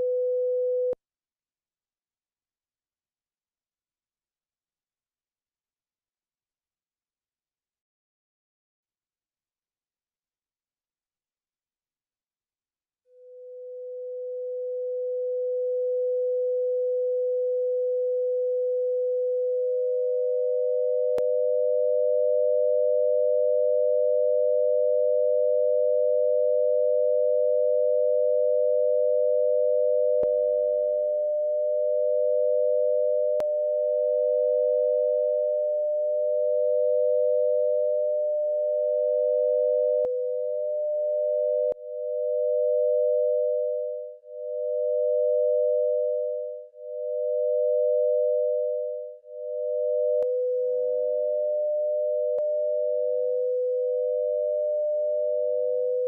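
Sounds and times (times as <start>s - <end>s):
pure sine tone: 0.0s - 1.0s, 13.0s - 56.0s
second higher sine tone: 0.0s - 1.0s, 13.1s - 56.0s.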